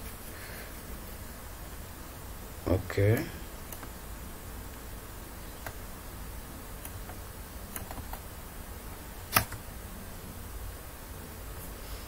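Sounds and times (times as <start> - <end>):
low background hum: 0.0 - 12.0
computer mouse clicks: 9.3 - 9.6.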